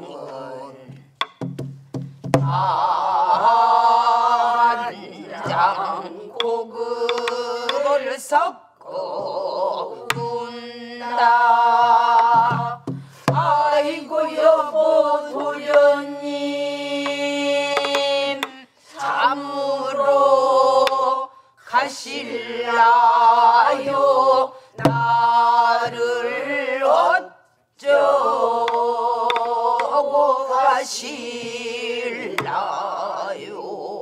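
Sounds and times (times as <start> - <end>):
group of voices singing: 0.0 - 1.5, 2.4 - 34.0
barrel drum strikes: 0.9 - 2.7, 24.8 - 25.2.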